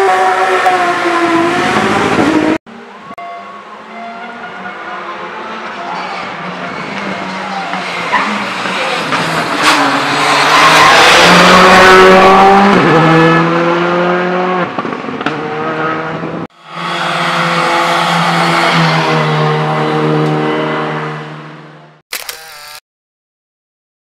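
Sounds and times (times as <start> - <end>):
rally car engine passing: 5.0 - 21.8.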